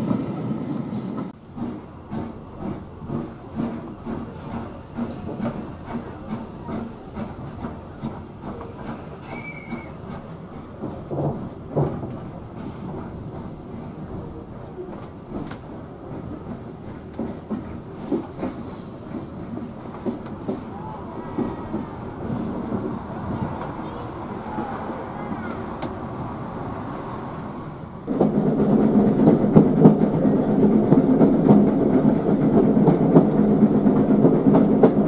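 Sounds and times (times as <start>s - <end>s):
train wheels rumbling and clattering: 0.0s - 35.0s
steam hissing: 17.8s - 22.9s.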